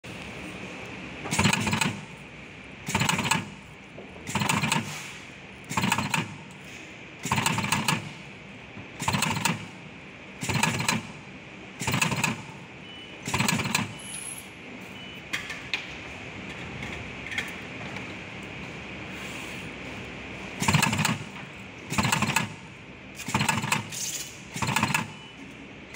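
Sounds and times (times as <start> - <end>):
spot welding bursts: 4.3 - 6.4, 7.2 - 8.1.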